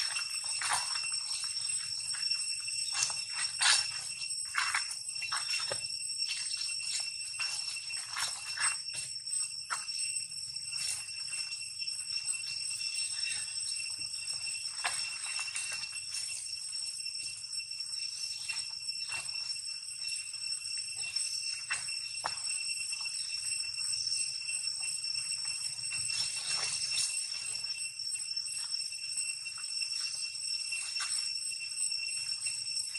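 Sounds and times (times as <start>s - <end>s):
insects droning high-pitched: 0.0s - 32.9s
clicks and rustles in dry leaves: 2.8s - 8.9s, 25.7s - 27.7s.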